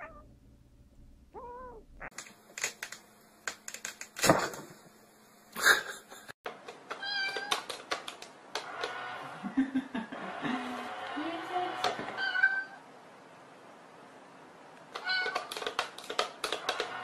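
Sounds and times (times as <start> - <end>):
cat meowing: 0.0 - 0.3, 1.3 - 2.1, 12.2 - 12.8.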